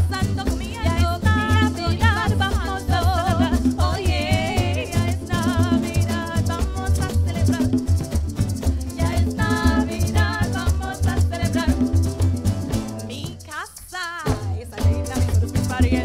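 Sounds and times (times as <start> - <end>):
pulsing bass line: 0.0 - 13.3
maraca rattle: 0.0 - 16.0
strummed acoustic guitar: 0.0 - 16.0
people singing with vibrato: 0.8 - 7.8, 8.7 - 12.2.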